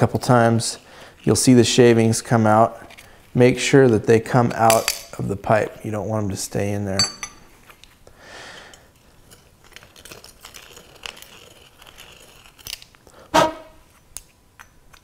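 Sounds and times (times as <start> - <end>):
reamer scraping copper pipe: 13.3 - 13.8.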